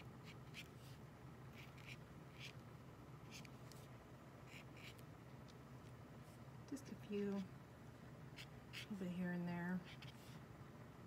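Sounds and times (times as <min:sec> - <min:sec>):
paint marker scratching on paper: 0:00.0 - 0:02.6, 0:03.2 - 0:03.8, 0:04.4 - 0:05.0, 0:08.4 - 0:09.0, 0:09.8 - 0:10.4
low steady hum: 0:00.0 - 0:11.0.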